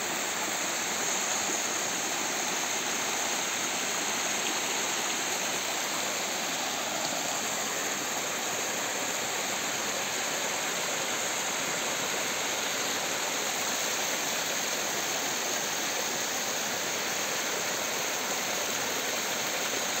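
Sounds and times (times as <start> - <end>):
creek water splashing over rocks: 0.2 - 15.5.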